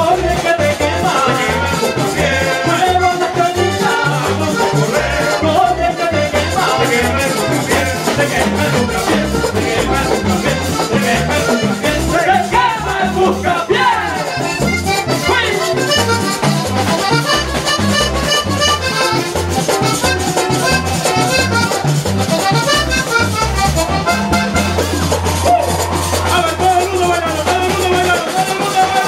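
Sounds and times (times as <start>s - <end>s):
accordion quick notes: 0.0s - 29.0s
bass: 0.0s - 29.0s
percussion: 0.0s - 29.0s.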